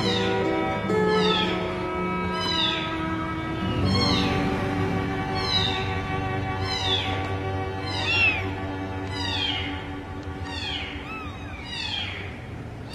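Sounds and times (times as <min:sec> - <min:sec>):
background music with sustained notes: 0:00.0 - 0:12.9
kitten mewing: 0:02.4 - 0:02.9, 0:07.8 - 0:09.8, 0:10.4 - 0:12.9.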